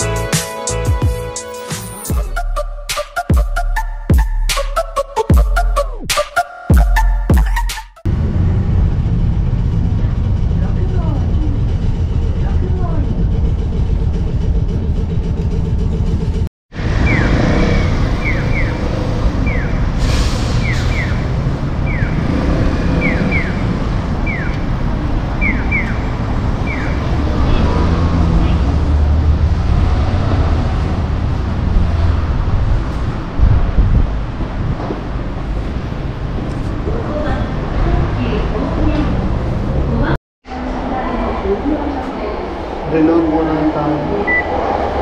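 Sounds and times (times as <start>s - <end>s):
city traffic: 0.0s - 45.0s
train carriage rumble: 8.1s - 16.5s
crossing signal chirping: 17.0s - 22.3s, 22.9s - 27.2s, 44.2s - 44.6s.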